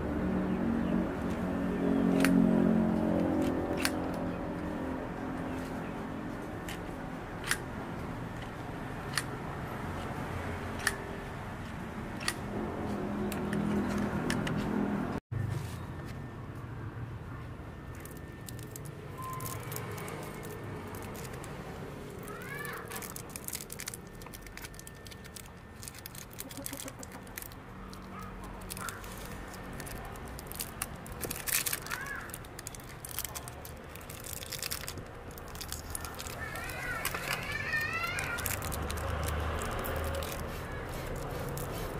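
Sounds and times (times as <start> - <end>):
foil wrapper crinkling: 17.9 - 41.9.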